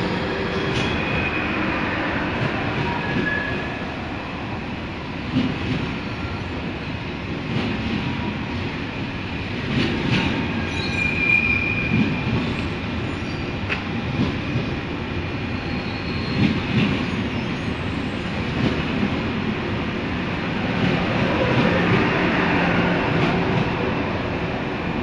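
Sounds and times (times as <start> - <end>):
train wheels rumbling on rail: 0.0 - 25.0
high wheel squeal: 10.7 - 12.0.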